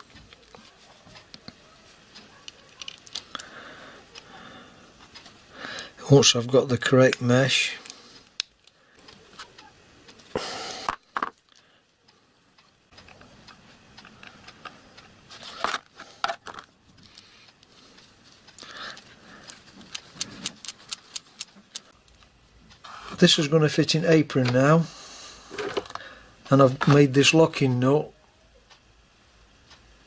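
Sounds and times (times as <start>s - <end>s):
small metallic gear clicks: 2.1s - 3.5s, 18.4s - 22.3s.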